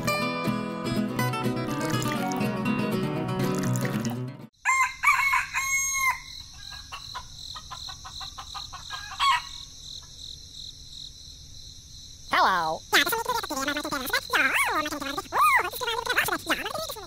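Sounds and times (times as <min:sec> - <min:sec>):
music: 0:00.0 - 0:04.5
rooster crowing: 0:04.6 - 0:09.6
chicken clucks: 0:06.6 - 0:09.4.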